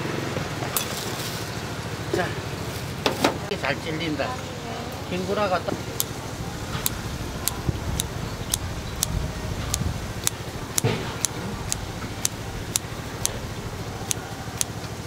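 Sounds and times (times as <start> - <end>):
steady low hum: 5.0 - 15.0.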